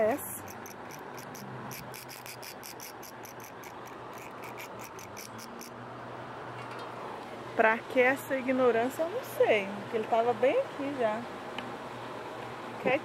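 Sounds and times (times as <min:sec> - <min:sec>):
insect chirping: 0:00.3 - 0:05.7.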